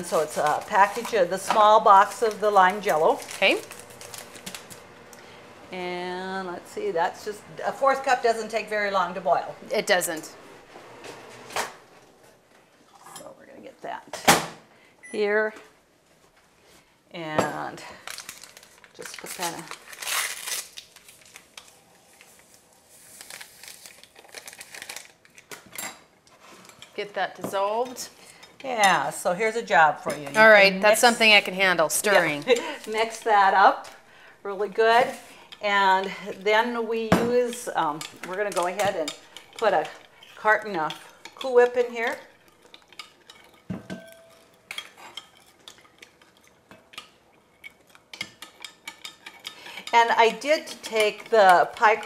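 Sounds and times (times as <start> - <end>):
spoons stirring and tapping bowls: 0.0 - 4.8, 30.0 - 52.0
packet crinkling: 2.0 - 4.8, 18.0 - 25.6.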